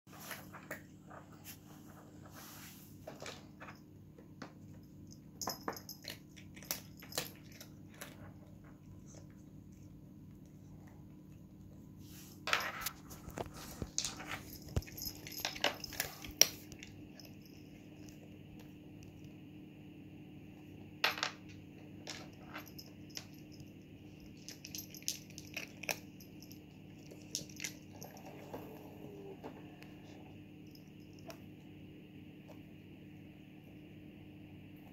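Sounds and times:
steady low hum: 0.1s - 34.9s
cat crunching food: 6.0s - 10.9s.

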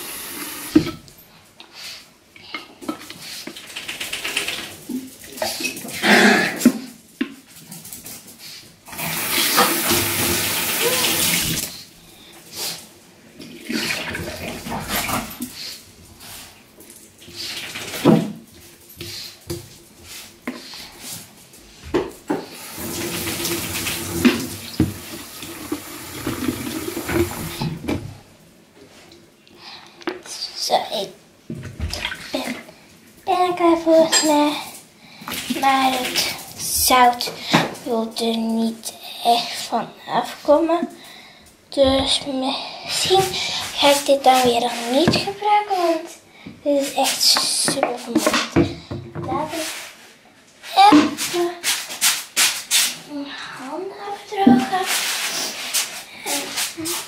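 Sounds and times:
tap running: 21.9s - 28.1s
knocks and splashes: 31.6s - 32.6s.

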